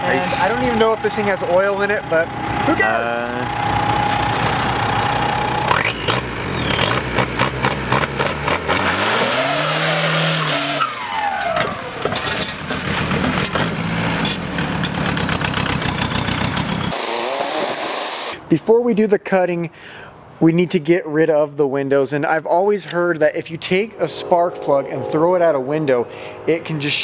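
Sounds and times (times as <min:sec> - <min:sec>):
exhaust clatter: 0:00.0 - 0:08.9, 0:11.4 - 0:17.0
diesel engine revving: 0:00.0 - 0:12.1.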